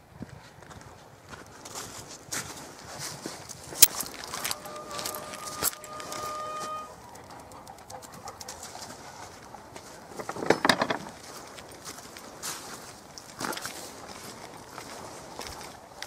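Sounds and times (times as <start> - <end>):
footsteps on grass and leaves: 0.5 - 6.3, 11.2 - 16.0
hunting horn long note: 4.2 - 7.1.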